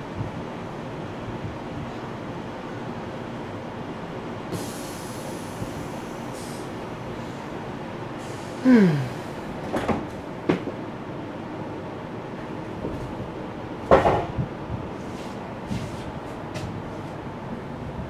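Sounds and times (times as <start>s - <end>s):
train running: 0.0s - 18.0s
sliding door hissing: 4.5s - 6.8s.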